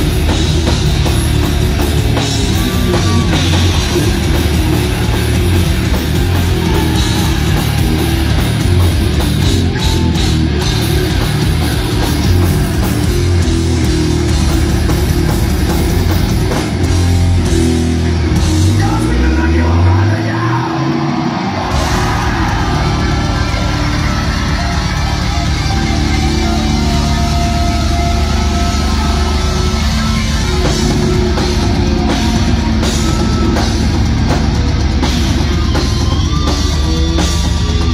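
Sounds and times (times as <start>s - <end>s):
death metal band playing live: 0.0s - 37.9s
vocals: 18.6s - 24.2s.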